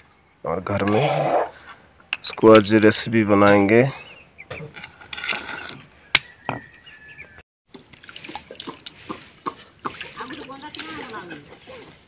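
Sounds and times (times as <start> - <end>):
water splashing: 7.7 - 12.0.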